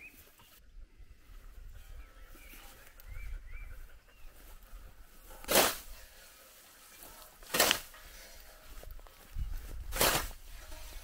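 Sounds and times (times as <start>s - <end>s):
scythe swishing through tall grass: 5.2s - 11.0s.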